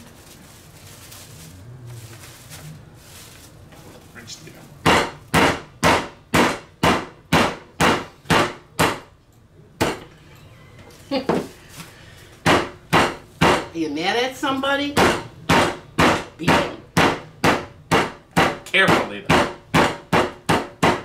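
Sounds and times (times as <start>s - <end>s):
meat pounder striking: 4.8s - 9.1s, 12.4s - 13.7s, 15.0s - 21.0s.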